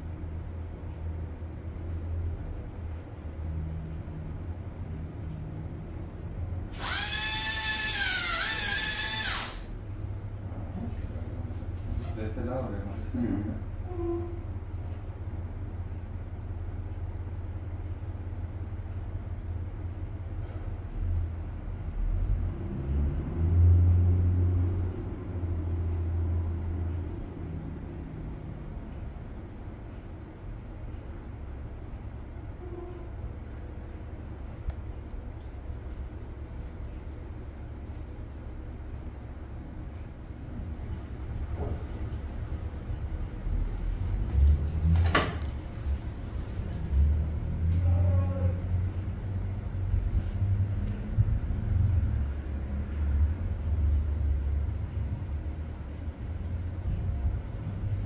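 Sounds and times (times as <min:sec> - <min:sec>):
low steady hum: 0:00.0 - 0:58.0
dental drill whining: 0:06.8 - 0:09.7
passing vehicle engine rumble: 0:09.3 - 0:58.0.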